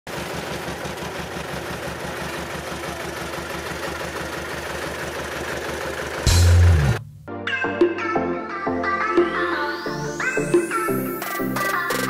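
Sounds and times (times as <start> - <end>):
road roller diesel engine: 0.1 - 7.0.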